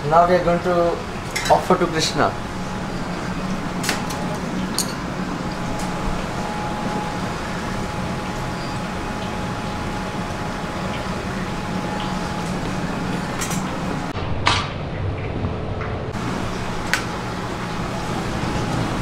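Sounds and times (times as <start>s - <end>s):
ventilation hum: 0.0s - 19.0s
faint high whine: 1.8s - 14.1s.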